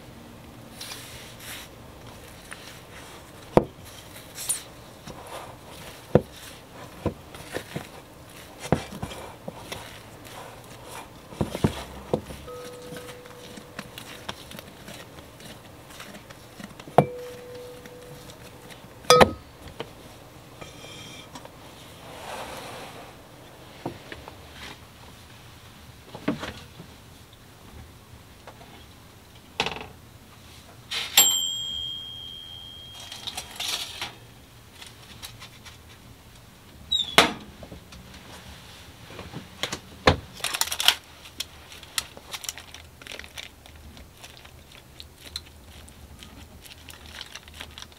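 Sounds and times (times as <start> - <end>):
metal kitchenware knocks and clinks: 19.1 - 19.4.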